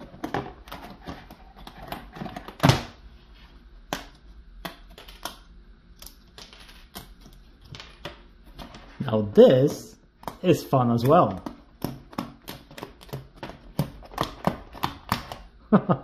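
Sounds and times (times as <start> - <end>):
card pieces clicking and snapping: 3.9 - 8.2, 10.2 - 15.5.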